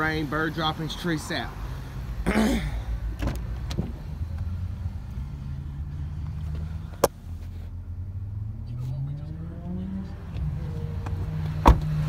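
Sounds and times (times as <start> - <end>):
car door shutting: 3.1 - 4.0, 11.6 - 12.0.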